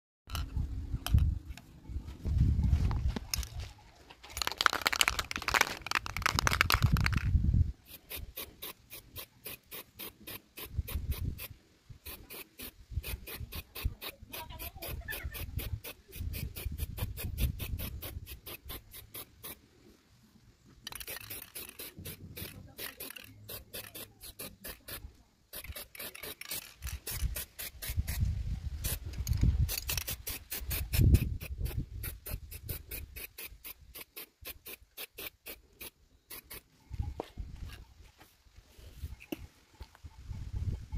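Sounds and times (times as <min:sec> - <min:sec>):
spray paint can hissing: 0:04.4 - 0:19.6, 0:20.9 - 0:36.7.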